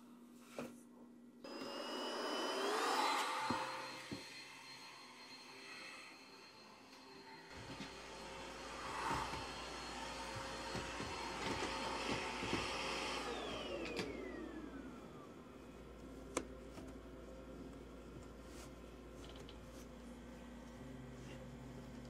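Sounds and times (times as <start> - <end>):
electric motor running: 1.5 - 5.0, 7.8 - 15.2.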